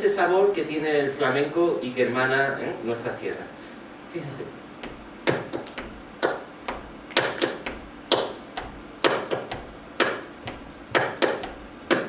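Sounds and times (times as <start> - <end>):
sharp hand claps: 5.3 - 12.0.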